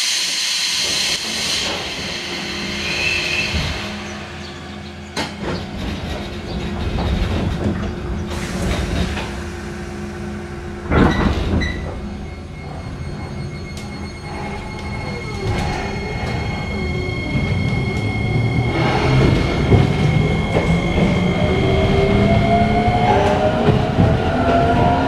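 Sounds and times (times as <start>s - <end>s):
train doors sliding shut: 5.1s - 12.7s.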